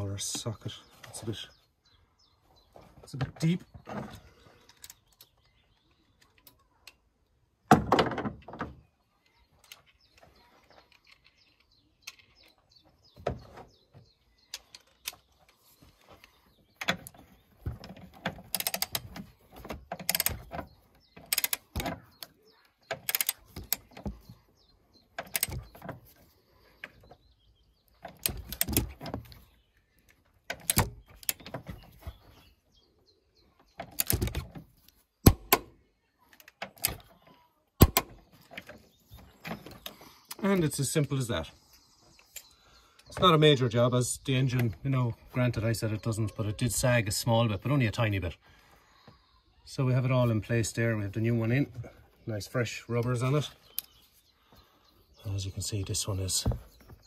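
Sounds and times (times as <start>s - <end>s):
ratchet wrench clicking: 18.5s - 19.0s, 20.1s - 20.4s, 21.3s - 21.6s, 23.0s - 23.8s.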